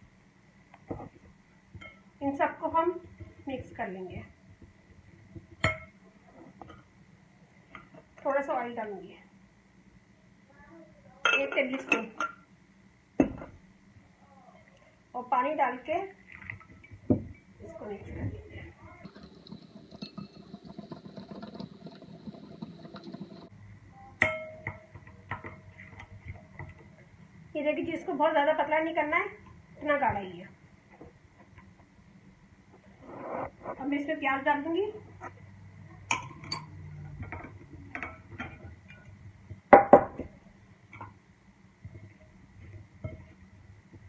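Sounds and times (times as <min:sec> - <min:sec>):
whisk beating batter in bowl: 0:19.0 - 0:23.5.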